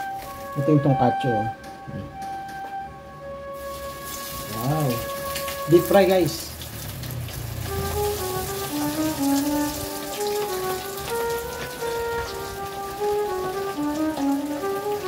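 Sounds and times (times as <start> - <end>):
simple stepping melody music: 0.0 - 6.6, 7.6 - 15.0
cutlets deep-frying in oil: 3.6 - 15.0.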